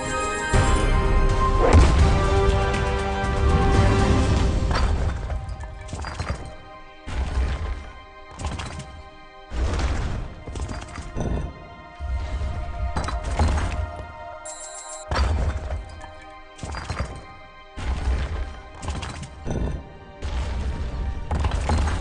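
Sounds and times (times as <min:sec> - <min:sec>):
slot game background music: 0:00.0 - 0:22.0
stone blocks thudding: 0:04.6 - 0:11.6, 0:15.0 - 0:22.0.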